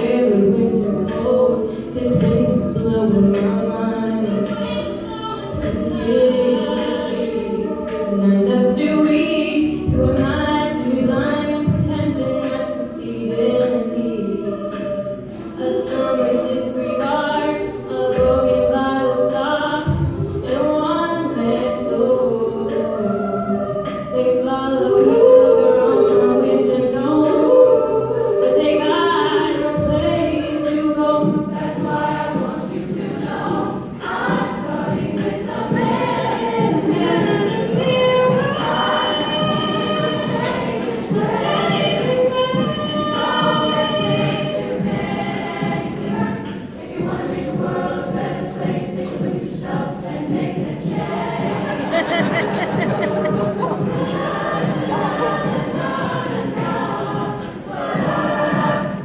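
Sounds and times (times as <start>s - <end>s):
mixed choir singing a cappella: 0.0s - 59.0s.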